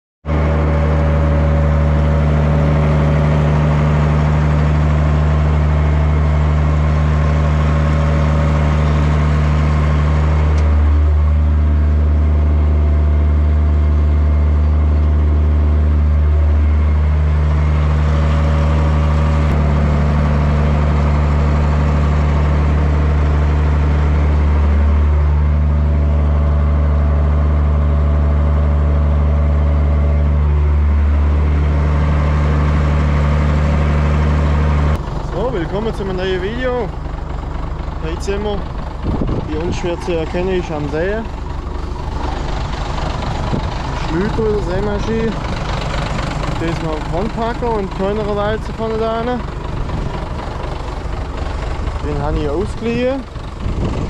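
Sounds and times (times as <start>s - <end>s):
tractor diesel engine under load: 0.2s - 54.0s.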